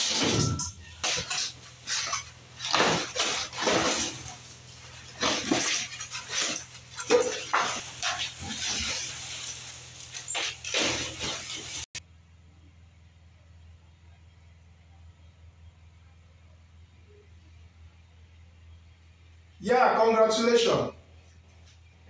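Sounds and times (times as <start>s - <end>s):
cardboard and plastic wrap rustling: 0.0s - 12.0s
faint low hum: 12.0s - 22.0s.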